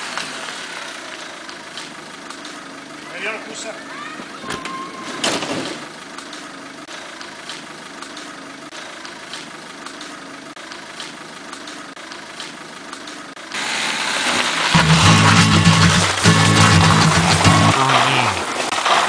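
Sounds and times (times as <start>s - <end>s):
van engine idling: 14.8s - 18.6s.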